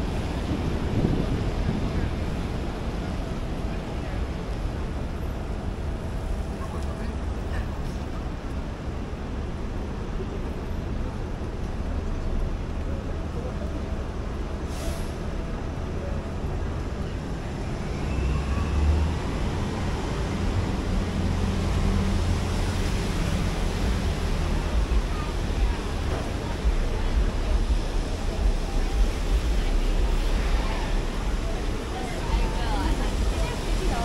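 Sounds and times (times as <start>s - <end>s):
city street traffic: 0.0s - 34.0s
heavy vehicle engine rumble: 0.0s - 34.0s
brief hiss: 14.7s - 15.2s.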